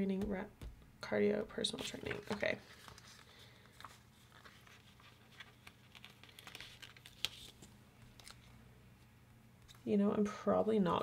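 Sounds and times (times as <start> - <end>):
paper stickers rustling: 1.8 - 8.5.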